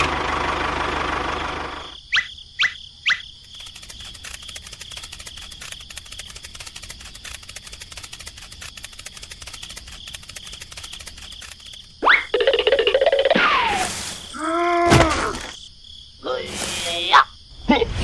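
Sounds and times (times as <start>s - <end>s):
steady chirring with rapid ticks: 3.1s - 13.4s.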